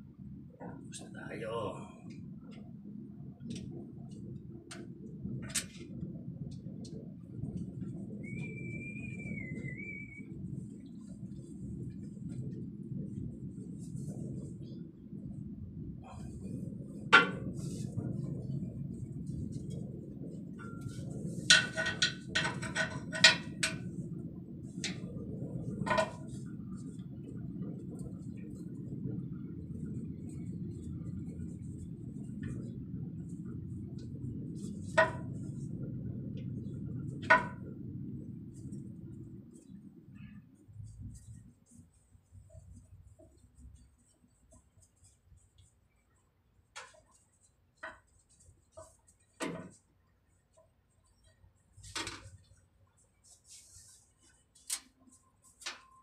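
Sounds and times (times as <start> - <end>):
low steady hum: 0.0 - 56.0
low steady rumble: 0.0 - 56.0
high whistle: 8.2 - 10.4.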